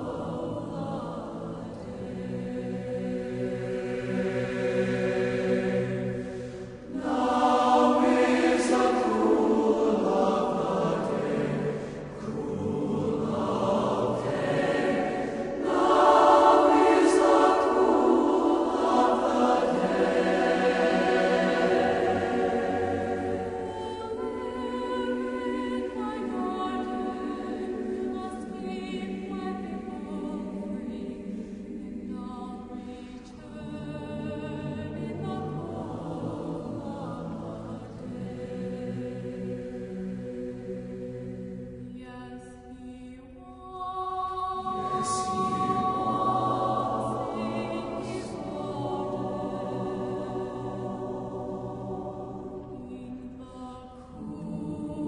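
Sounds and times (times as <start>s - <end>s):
choir singing held chords: 0.0s - 55.0s.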